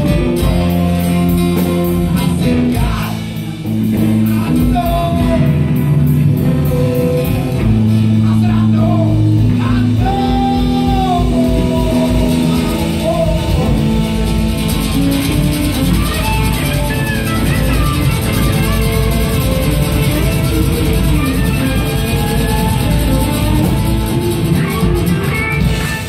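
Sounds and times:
rock band playing: 0:00.0 - 0:26.0.

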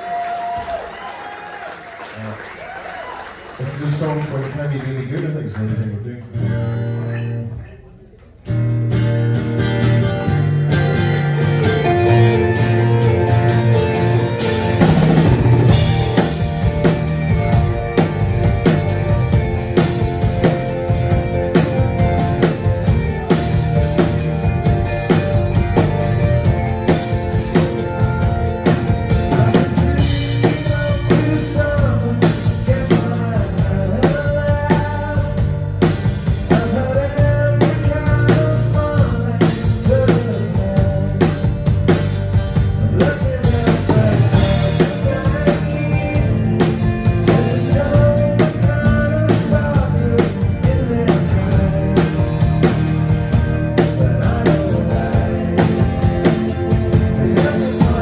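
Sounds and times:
live rock band playing: 0:00.0 - 0:58.0
drum kit beat: 0:08.6 - 0:58.0
person singing: 0:28.6 - 0:58.0.

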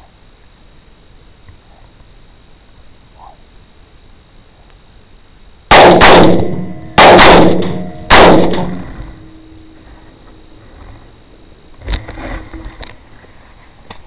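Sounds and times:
loud rifle shots: 0:05.7 - 0:09.4
gunshot ringing echo: 0:05.7 - 0:09.6.

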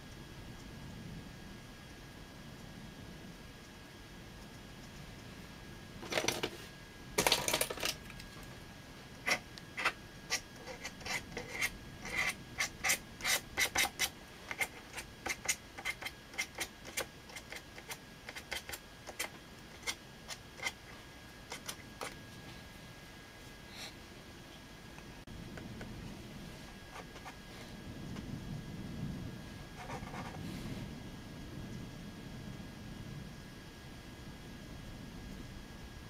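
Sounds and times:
brush scratching on paper: 0:09.2 - 0:22.2, 0:26.6 - 0:27.7, 0:29.7 - 0:30.4.

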